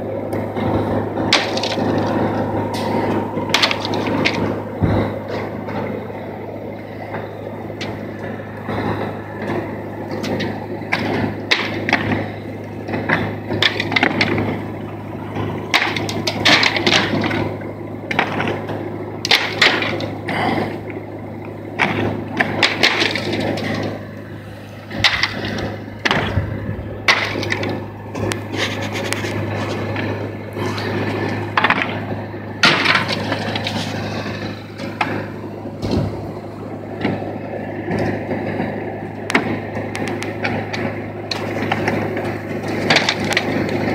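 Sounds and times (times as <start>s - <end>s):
steady low hum: 0.0s - 43.9s
slate cracking and clattering: 1.3s - 4.6s, 10.1s - 12.4s, 13.0s - 14.7s, 15.7s - 17.5s, 18.1s - 20.5s, 21.8s - 24.1s, 25.0s - 32.0s, 32.6s - 35.2s, 39.3s - 43.9s.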